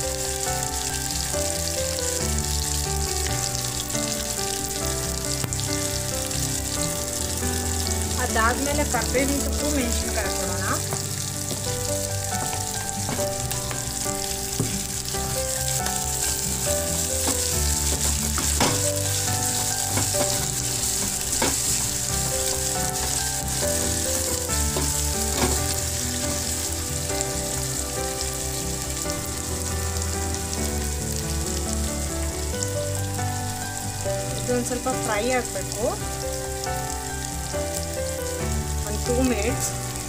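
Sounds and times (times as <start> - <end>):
onions sizzling in hot oil: 0.0 - 40.0
wooden spoon knocking on pot: 12.3 - 14.9, 17.2 - 21.8, 24.6 - 25.8.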